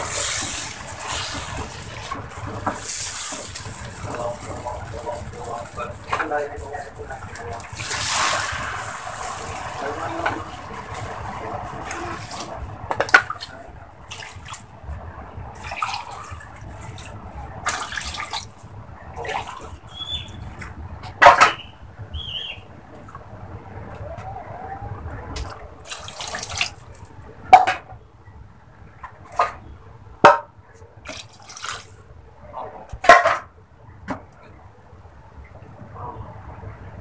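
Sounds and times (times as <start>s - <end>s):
water pouring and splashing: 0.0s - 21.6s, 25.3s - 27.9s, 31.0s - 32.1s.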